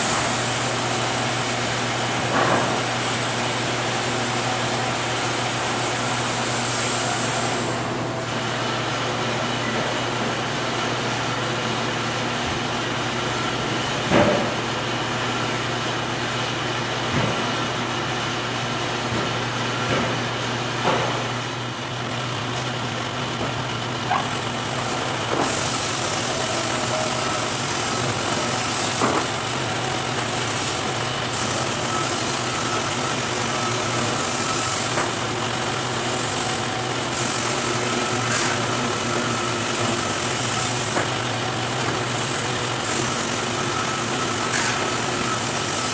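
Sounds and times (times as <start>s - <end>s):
sawmill machine hum: 0.0s - 45.9s
high hiss of saw cutting: 24.2s - 29.6s.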